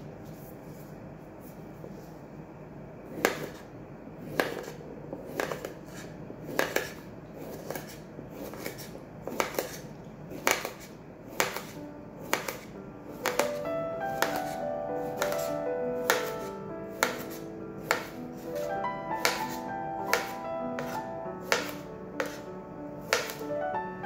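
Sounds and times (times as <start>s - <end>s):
knife slicing cucumber: 3.1s - 3.6s, 4.2s - 13.6s, 14.2s - 23.5s
knife blade knocking wooden board: 13.2s - 13.6s, 14.2s - 14.5s, 16.1s - 16.4s, 17.0s - 17.3s, 17.9s - 18.2s, 19.2s - 22.4s, 23.1s - 23.4s.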